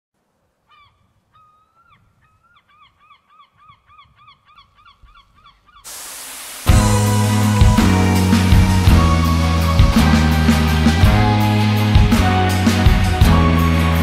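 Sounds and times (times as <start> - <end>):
steady rushing noise: 5.9 - 10.6.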